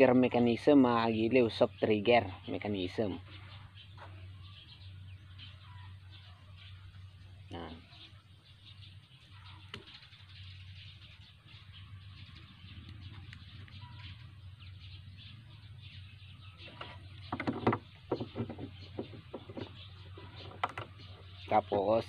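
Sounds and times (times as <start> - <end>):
plastic clicks and knocks: 16.7 - 19.8, 20.4 - 21.0.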